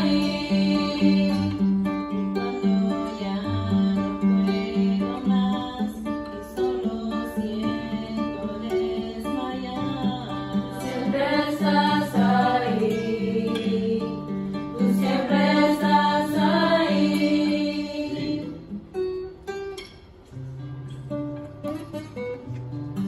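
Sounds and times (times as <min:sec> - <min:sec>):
women singing a hymn: 0:00.0 - 0:01.8, 0:02.4 - 0:18.6
acoustic guitar strumming: 0:00.0 - 0:23.0.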